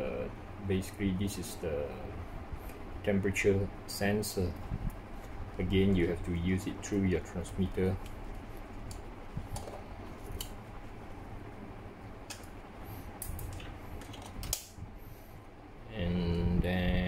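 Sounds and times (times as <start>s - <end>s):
plastic clicks and handling noise: 13.2s - 14.8s
man humming: 15.9s - 17.0s.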